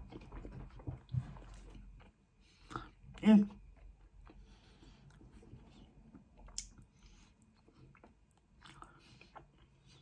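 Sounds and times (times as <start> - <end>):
chewing food: 0.0 - 10.0
wet mouth clicks: 6.4 - 6.9.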